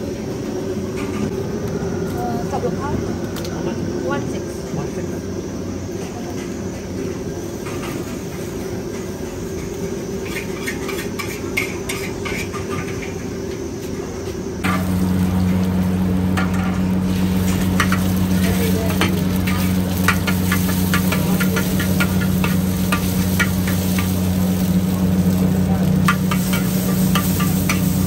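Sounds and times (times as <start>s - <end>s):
steady low hum: 13.9s - 28.0s
egg sizzling in a wok: 14.6s - 28.0s.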